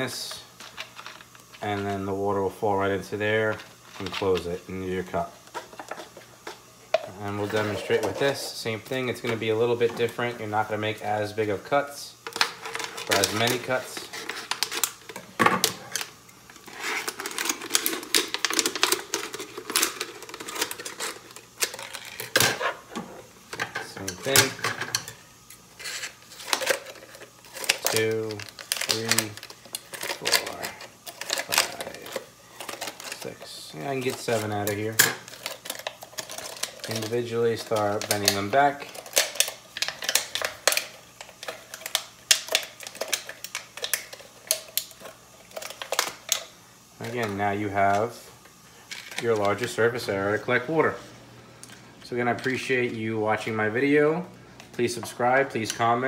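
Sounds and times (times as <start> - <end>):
plastic crackling and snapping: 12.3 - 22.6, 25.8 - 49.8
plastic bottle crinkling: 25.8 - 48.0.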